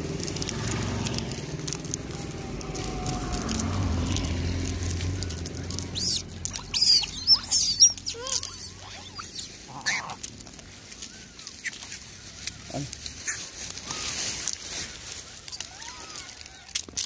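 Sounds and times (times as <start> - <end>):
low rumble: 0.0 - 14.0
monkey squeaks: 5.7 - 10.3, 11.0 - 12.2, 13.2 - 14.2, 15.5 - 16.8.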